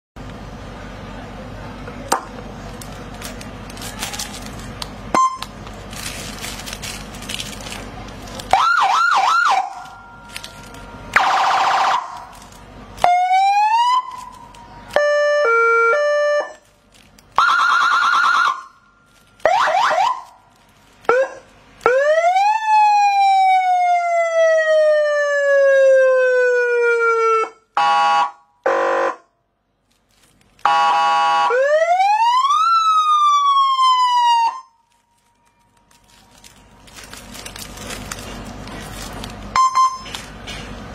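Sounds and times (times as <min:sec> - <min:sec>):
electronic car siren: 0:08.5 - 0:10.3, 0:11.1 - 0:12.3, 0:13.0 - 0:16.6, 0:17.4 - 0:18.8, 0:19.5 - 0:20.3, 0:30.6 - 0:34.8.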